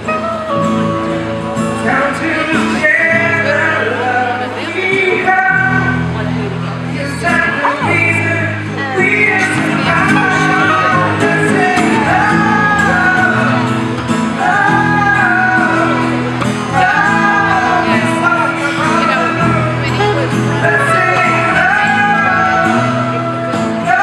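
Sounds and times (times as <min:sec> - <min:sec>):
acoustic guitar: 0:00.0 - 0:24.0
electric bass: 0:00.0 - 0:24.0
men singing together: 0:07.2 - 0:13.7, 0:14.3 - 0:19.7, 0:20.6 - 0:24.0.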